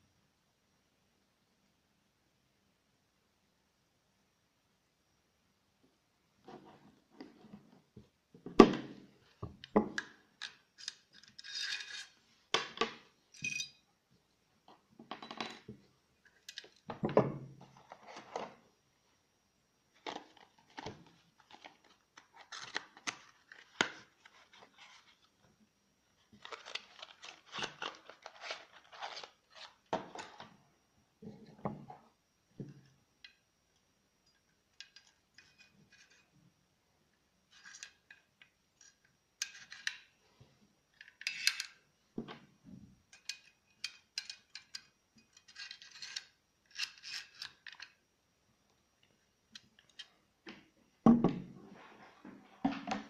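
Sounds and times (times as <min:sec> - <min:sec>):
small metal clicks and rattles: 0:43.1 - 0:48.0.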